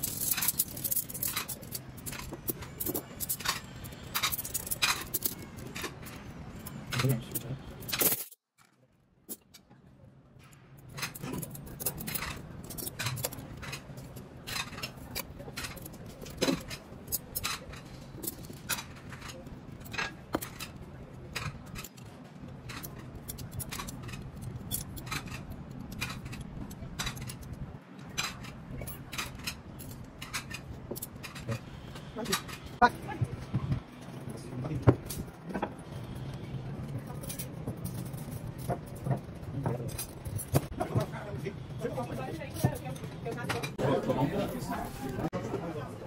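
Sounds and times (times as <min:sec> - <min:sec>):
cutlery clinking: 0:00.0 - 0:08.4, 0:10.5 - 0:22.1, 0:22.7 - 0:32.8.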